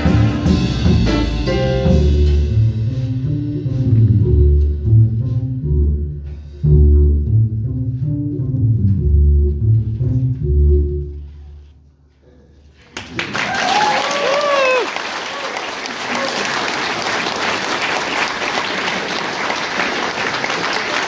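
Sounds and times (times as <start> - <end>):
drums: 0.0 - 10.4
jazz band playing loudly: 0.0 - 11.3
plucked double bass: 0.0 - 11.5.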